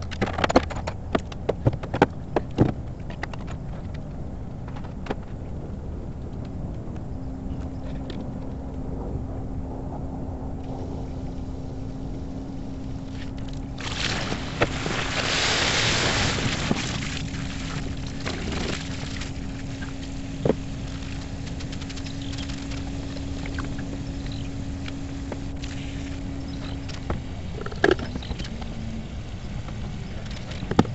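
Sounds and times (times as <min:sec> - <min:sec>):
low hum and rumble: 0:00.0 - 0:30.9
hose spraying water: 0:12.6 - 0:29.0
water splashing on ground: 0:13.8 - 0:26.2.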